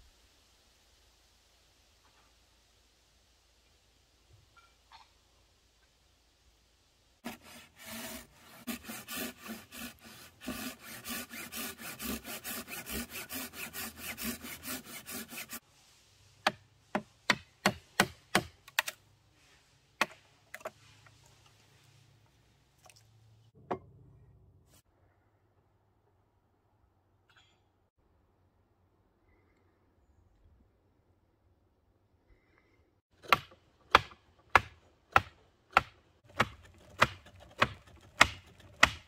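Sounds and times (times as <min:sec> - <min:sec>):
tool scraping spinning wood: 0:07.2 - 0:15.6, 0:36.3 - 0:39.0
sharp wooden knocks: 0:33.2 - 0:39.0.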